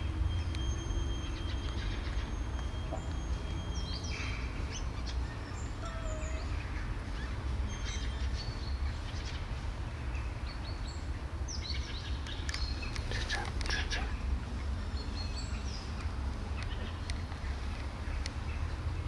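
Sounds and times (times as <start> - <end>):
bird chirps and calls: 0.4 - 9.5.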